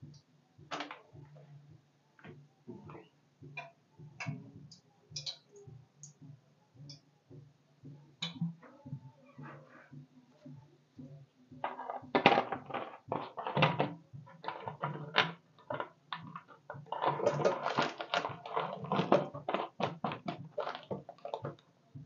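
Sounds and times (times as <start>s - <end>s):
hot oil crackling and popping: 12.7s - 21.6s.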